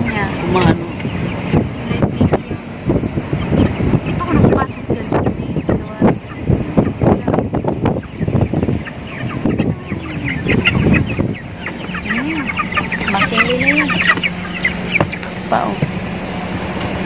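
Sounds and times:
low hum: 0:00.0 - 0:17.0
lower sliding calls: 0:05.9 - 0:17.0
short bird-like chirping calls: 0:08.0 - 0:15.4.

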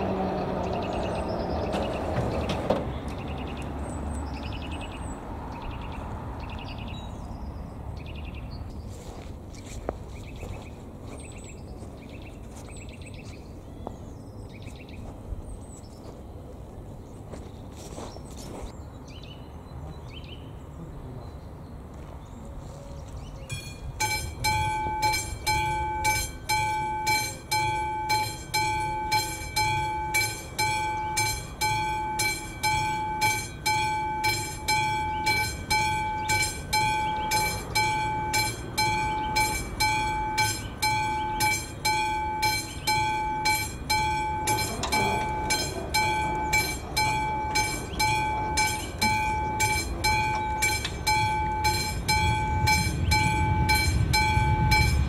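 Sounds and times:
level crossing bell ringing: 0:23.5 - 0:55.0.

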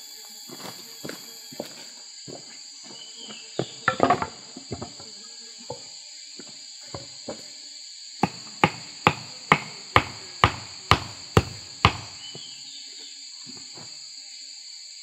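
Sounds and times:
high insect drone: 0:00.0 - 0:15.0
hatchet knocking wooden stake: 0:08.2 - 0:12.2.

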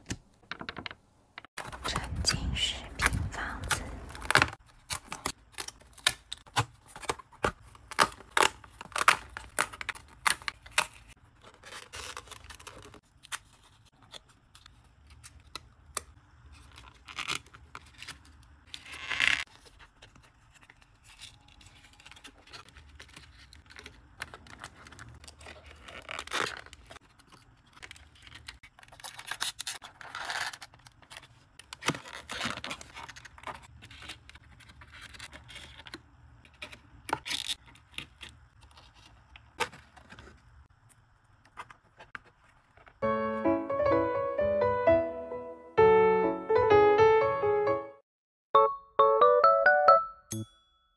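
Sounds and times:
card scraping and crackling: 0:03.1 - 0:43.0
cardboard snapping and tearing: 0:03.7 - 0:14.2, 0:27.8 - 0:34.2.

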